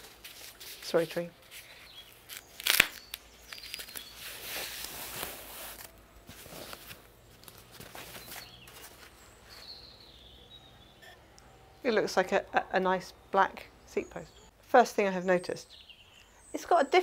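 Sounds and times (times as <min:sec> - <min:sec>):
paper rustling and crinkling: 0:00.0 - 0:09.8.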